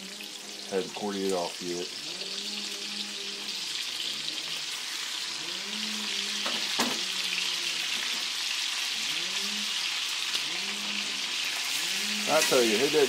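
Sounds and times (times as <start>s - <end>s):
bacon sizzling in a skillet: 0.0s - 13.0s.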